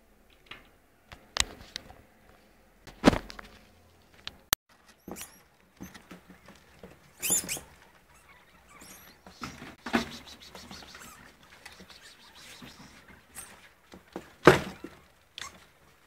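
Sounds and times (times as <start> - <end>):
animals scuffling: 1.5 - 16.0
small animals scrabbling in cage: 4.7 - 16.0.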